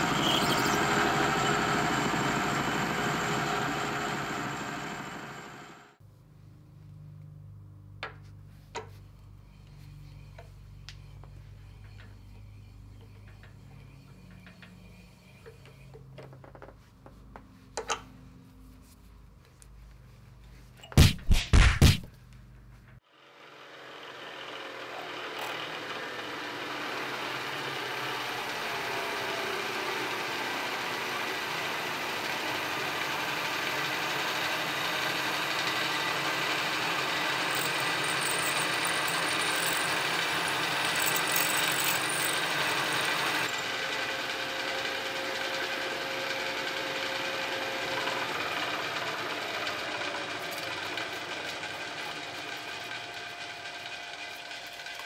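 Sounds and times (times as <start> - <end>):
end mill cutting steel: 0.0 - 5.9, 23.5 - 55.0
milling machine running: 0.0 - 5.9, 24.5 - 55.0.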